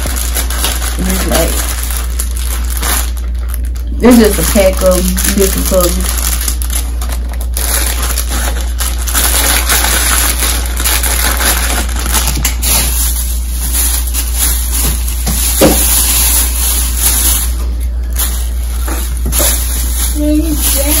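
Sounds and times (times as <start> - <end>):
plastic bag rustling and crinkling: 0.0 - 21.0
steady low hum: 0.0 - 21.0.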